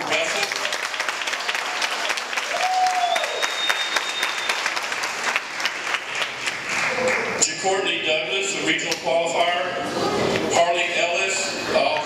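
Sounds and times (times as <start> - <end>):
audience applauding: 0.0 - 7.4
person whooping: 2.5 - 3.8
high whistle: 2.7 - 4.8.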